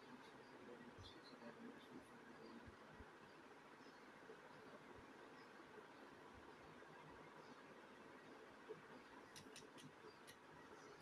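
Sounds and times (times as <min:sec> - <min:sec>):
faint background hiss: 0:00.0 - 0:11.0.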